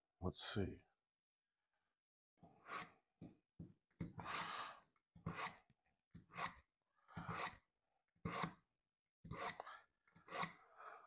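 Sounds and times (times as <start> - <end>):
knife scraping through sharpener: 2.6 - 3.1, 5.2 - 8.6, 9.2 - 10.6.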